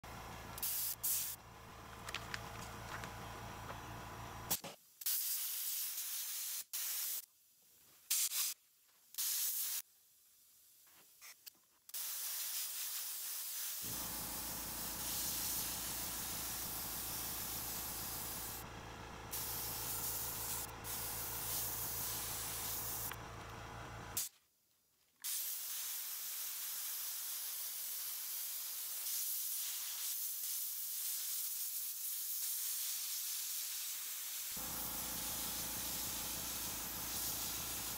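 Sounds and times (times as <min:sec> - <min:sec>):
airbrush hissing: 0:12.0 - 0:18.6, 0:19.3 - 0:23.2, 0:25.3 - 0:37.9.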